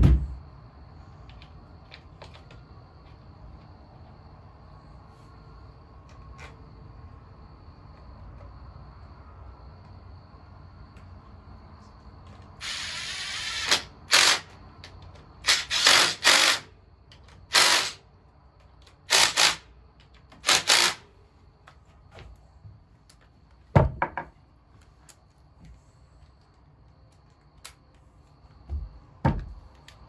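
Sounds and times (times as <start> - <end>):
cordless power driver whirring: 12.6 - 14.4.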